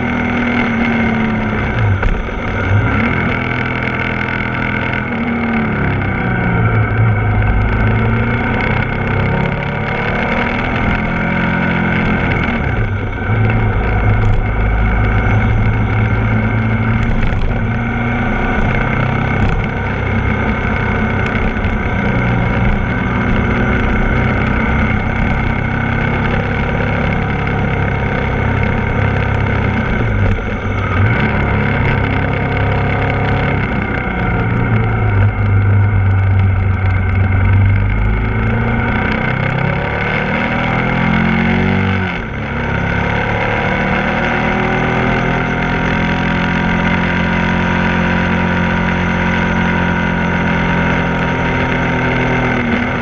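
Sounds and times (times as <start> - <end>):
motorcycle engine: 0.0 - 53.0.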